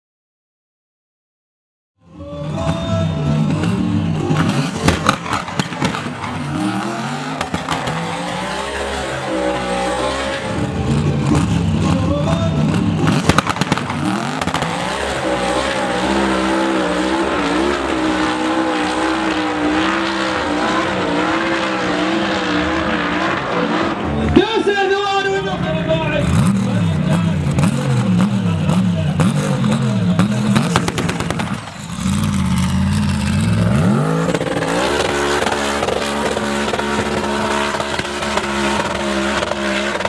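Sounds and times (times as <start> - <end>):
engine revving with crackles: 3.4 - 24.1, 26.1 - 40.0.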